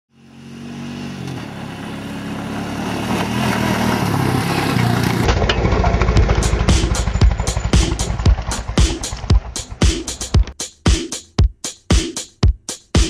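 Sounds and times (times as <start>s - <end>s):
pounding drum beat with heavy bass: 5.6s - 13.0s
buzzy synth line: 5.7s - 10.5s.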